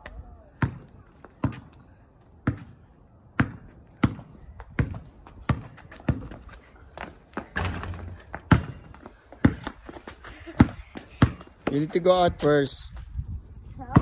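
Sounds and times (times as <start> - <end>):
basketball bouncing on asphalt: 0.0 - 13.2, 13.8 - 14.0.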